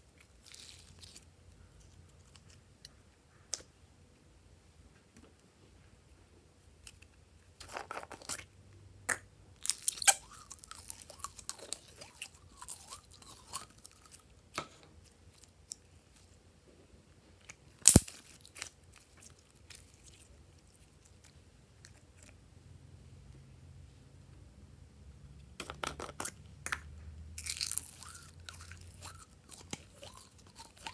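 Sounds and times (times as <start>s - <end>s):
slime crackling and squelching: 0.2s - 2.6s.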